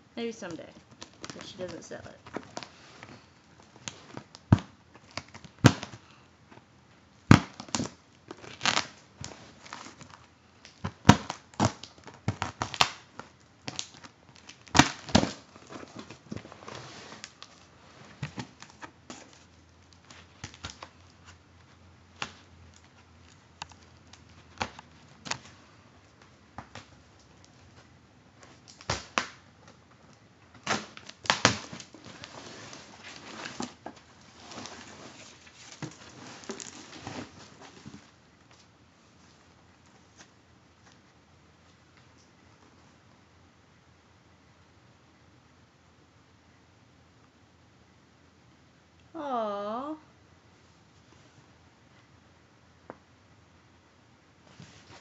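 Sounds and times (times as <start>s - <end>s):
cardboard box crackling and rustling: 30.8s - 38.2s.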